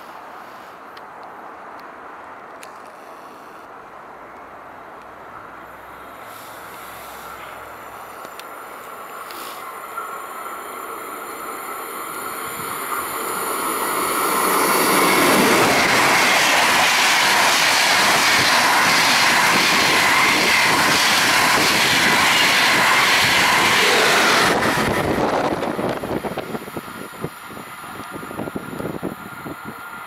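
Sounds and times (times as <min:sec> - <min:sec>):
train passing at speed: 0:03.4 - 0:30.0.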